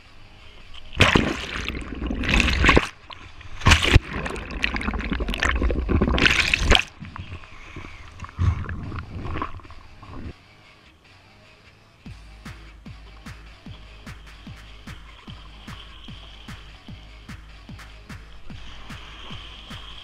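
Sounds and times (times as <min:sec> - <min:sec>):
water gurgling and rushing: 0:00.7 - 0:10.4, 0:14.1 - 0:20.0.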